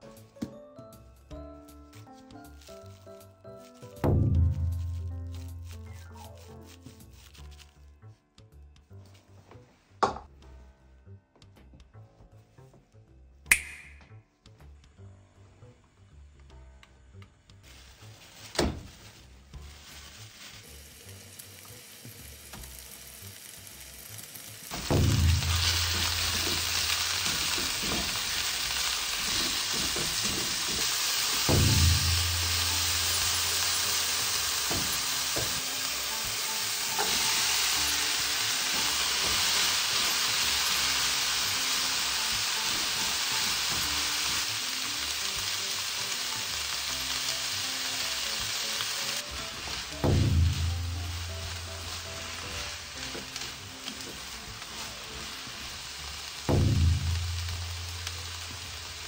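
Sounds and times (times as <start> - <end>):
meat sizzling in a pan: 2.0 - 7.6, 17.7 - 59.0.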